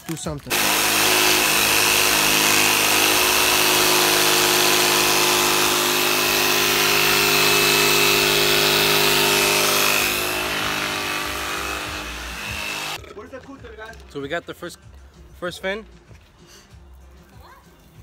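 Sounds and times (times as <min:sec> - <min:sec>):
jigsaw cutting wood: 0:00.5 - 0:13.0.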